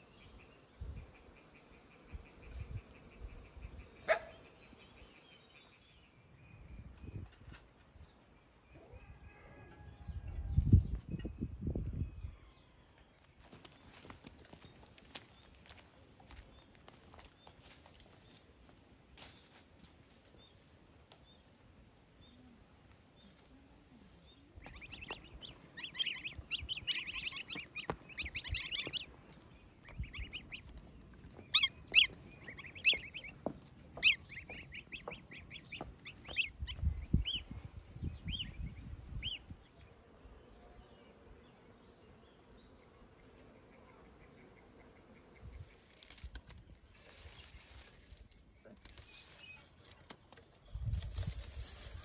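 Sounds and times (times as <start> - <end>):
goslings peeping: 24.6 - 37.5, 38.2 - 39.5.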